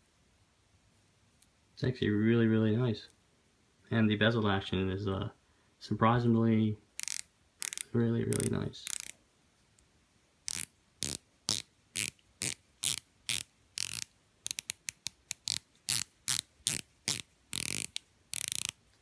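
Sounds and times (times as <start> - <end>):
watch bezel ratcheting clicks: 7.0 - 9.2, 10.5 - 18.8.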